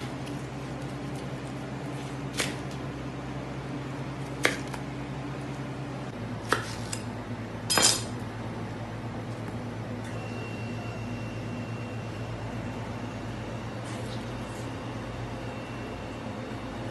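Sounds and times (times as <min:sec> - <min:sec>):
knife cutting watermelon rind: 0:06.4 - 0:07.1.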